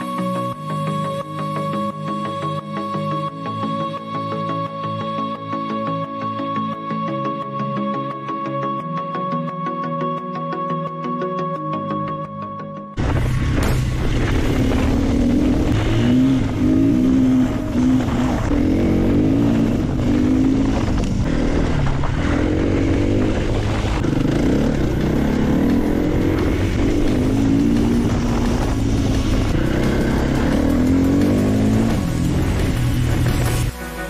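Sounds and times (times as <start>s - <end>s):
dirt bike engine revving: 13.0s - 33.7s.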